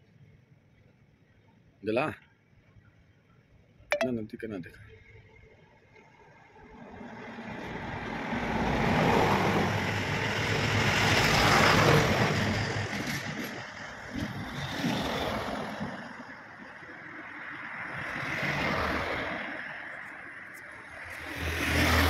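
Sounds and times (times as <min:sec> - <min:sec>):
vehicle passing by: 0:20.9 - 0:22.0.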